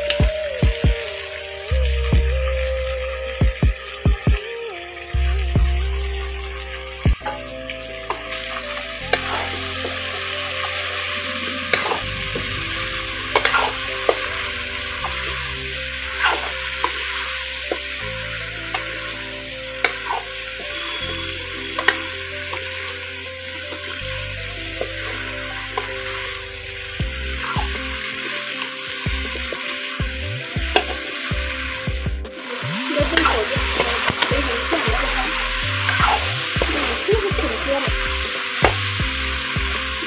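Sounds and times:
food sizzling in a pan: 6.0 - 40.0.

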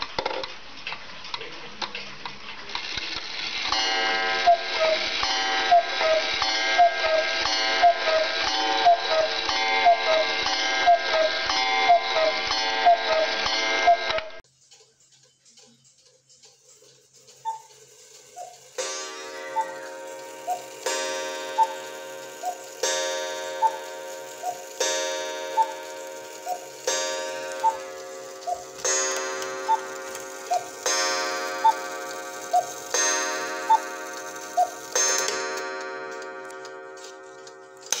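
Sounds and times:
clock gong strikes: 3.7 - 14.2, 18.7 - 38.0
cuckoo clock calls: 3.7 - 38.0.

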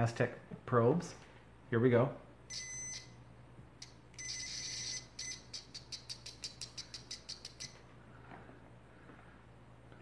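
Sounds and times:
multimeter continuity beeping: 2.5 - 3.2, 3.8 - 7.8.

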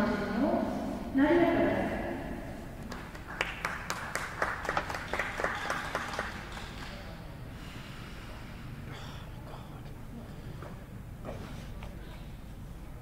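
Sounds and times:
sparse applause: 2.8 - 7.0.

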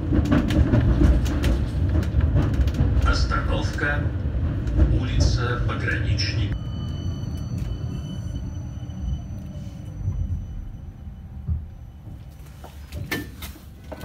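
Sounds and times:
tram cabin rumble: 0.0 - 14.0.

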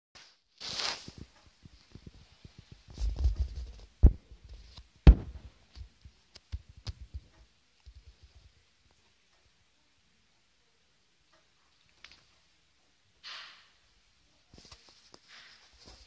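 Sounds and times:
short hiss: 0.2 - 1.2, 13.2 - 13.8
sharp knocks: 5.1 - 5.5.

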